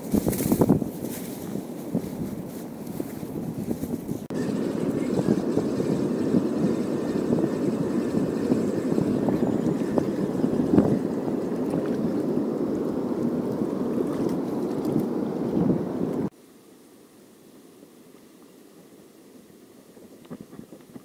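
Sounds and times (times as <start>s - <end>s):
wind buffeting microphone: 0.0s - 16.3s.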